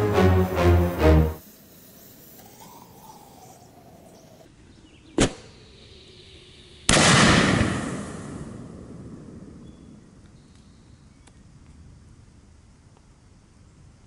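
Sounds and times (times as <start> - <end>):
firework lift charge crack: 0.0 - 4.5
firework shell blast: 6.9 - 8.8.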